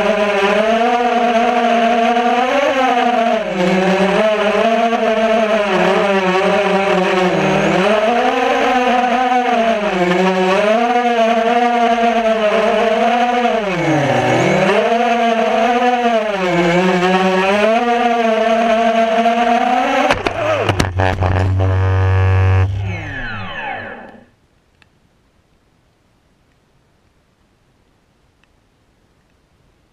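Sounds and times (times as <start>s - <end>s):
drone motors whining: 2.6s - 24.3s
drone crashing into brush: 20.0s - 24.1s.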